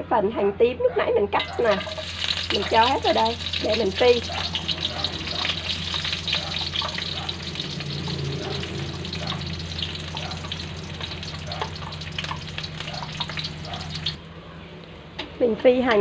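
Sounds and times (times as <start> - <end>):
shallots sizzling in hot oil: 1.4 - 14.2
steady low hum: 1.4 - 14.8.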